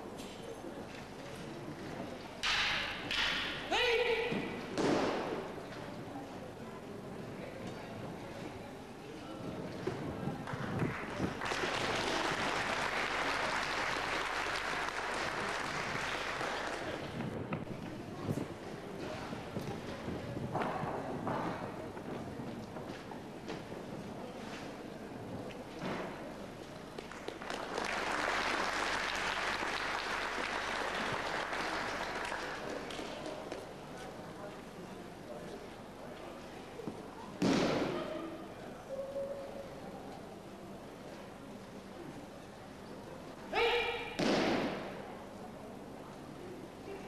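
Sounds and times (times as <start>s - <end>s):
audience applauding: 10.5s - 17.2s, 27.0s - 33.2s.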